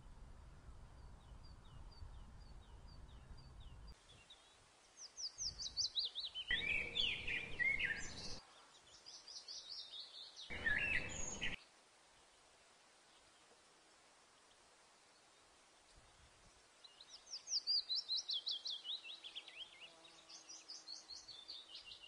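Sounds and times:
robin singing: 0:01.0 - 0:11.6, 0:16.8 - 0:22.0
faint high chirp: 0:05.0 - 0:08.4, 0:09.1 - 0:11.6.

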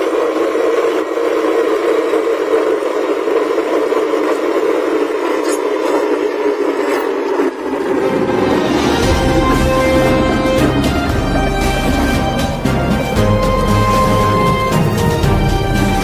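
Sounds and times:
diesel engine drone: 0:07.4 - 0:16.0.

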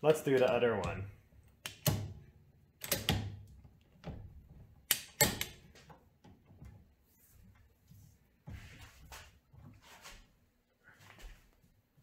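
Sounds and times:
metallic clicks and clanks of tool: 0:02.8 - 0:03.2, 0:04.9 - 0:05.6.

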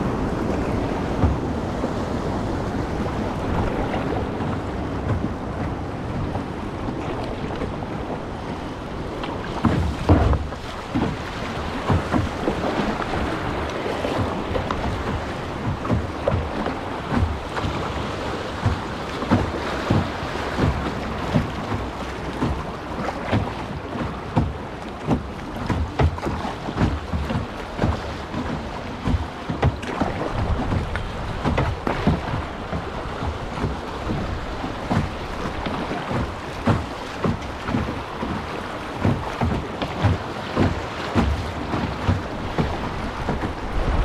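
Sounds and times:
water splashing: 0:00.0 - 0:44.0
wind rumbling on microphone: 0:00.0 - 0:44.0
low knocks: 0:01.1 - 0:02.0, 0:09.2 - 0:17.5.

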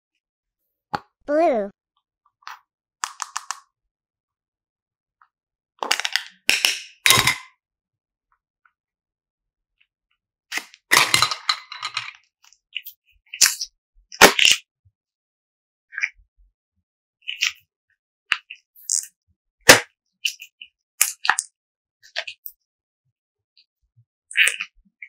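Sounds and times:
plastic box cracking and clicking: 0:05.8 - 0:07.3.

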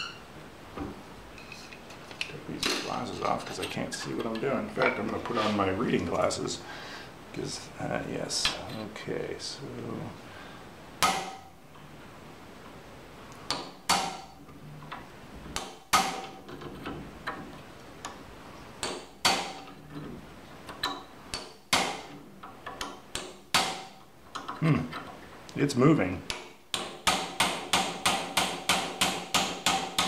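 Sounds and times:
hammer striking metal punch: 0:11.0 - 0:11.5, 0:13.5 - 0:14.4, 0:15.6 - 0:16.3, 0:18.8 - 0:19.7, 0:21.3 - 0:22.2, 0:22.8 - 0:24.0, 0:26.3 - 0:30.0.

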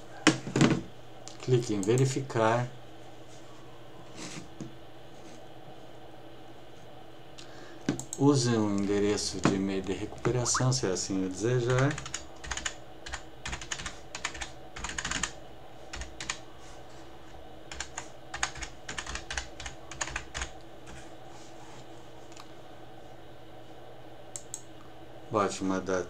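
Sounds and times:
typing on computer keyboard: 0:11.7 - 0:16.4, 0:17.7 - 0:20.5.

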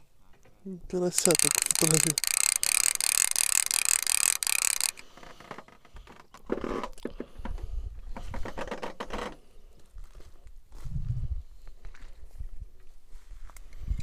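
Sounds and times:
fishing reel whirring: 0:01.1 - 0:05.0.

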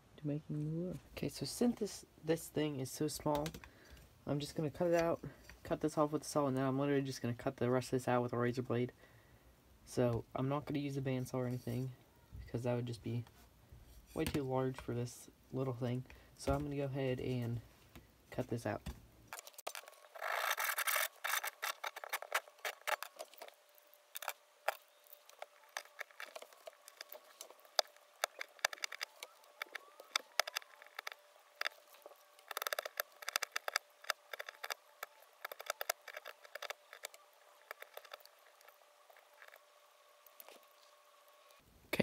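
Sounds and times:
knife whittling wood: 0:19.3 - 0:39.7.

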